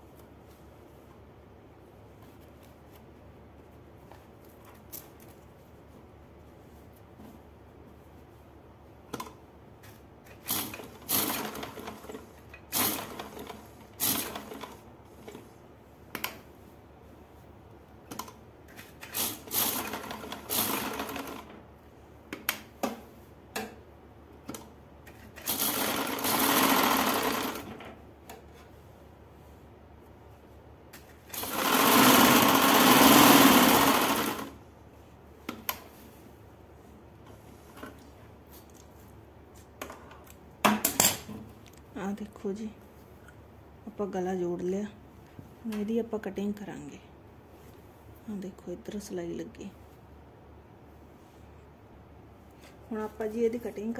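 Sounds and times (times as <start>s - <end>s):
sewing machine stitching: 10.3s - 15.4s, 18.9s - 21.6s, 25.1s - 27.8s, 31.3s - 34.6s.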